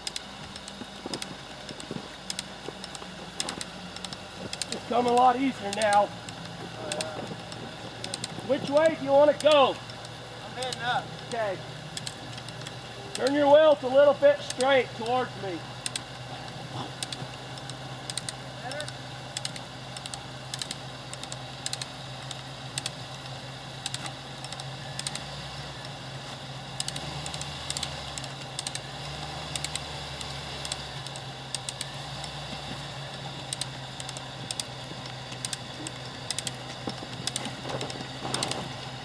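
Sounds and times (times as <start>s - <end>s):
cable jack ratcheting clicks: 0.0s - 13.8s, 14.4s - 15.2s, 15.8s - 16.1s, 17.0s - 26.0s, 26.8s - 38.9s.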